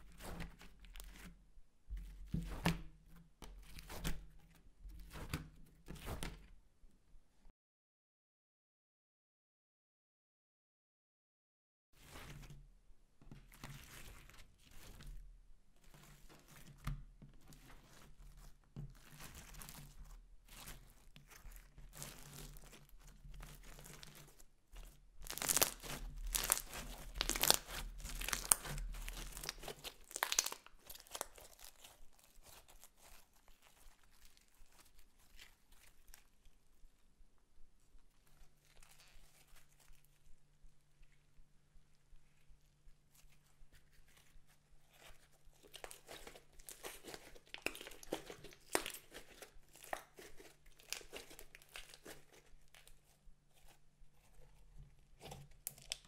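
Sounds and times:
slime squishing and crackling: 17.4 - 36.7, 38.1 - 40.3, 43.1 - 56.0.

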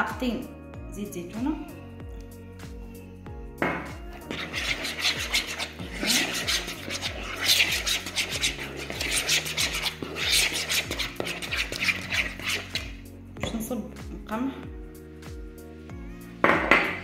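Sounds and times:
soft background music: 0.0 - 17.0
spoon stirring thick mixture in bowl: 3.9 - 13.6.

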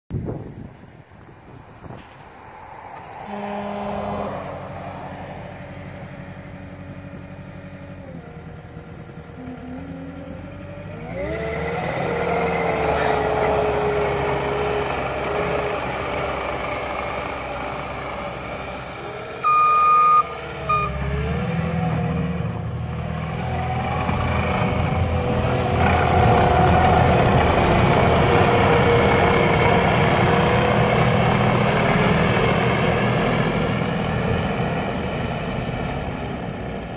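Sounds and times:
diesel engine revving: 2.2 - 36.9
backup alarm beeping: 19.4 - 21.0.

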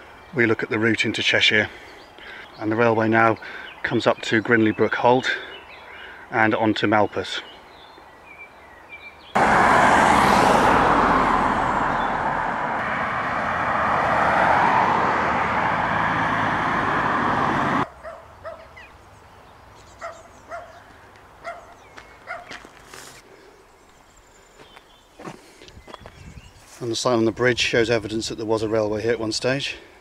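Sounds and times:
cars rushing past: 9.3 - 17.9.

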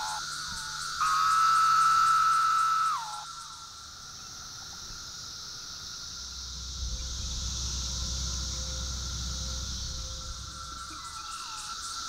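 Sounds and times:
cicadas droning: 0.0 - 12.0
low rumble: 6.0 - 12.0.

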